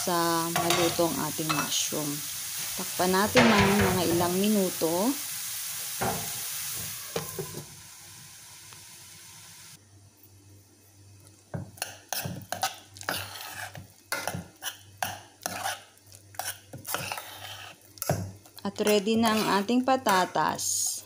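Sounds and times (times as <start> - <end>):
food sizzling in a frying pan: 0.0 - 21.0
spoon scraping a steel pot: 11.8 - 18.2, 18.8 - 20.2.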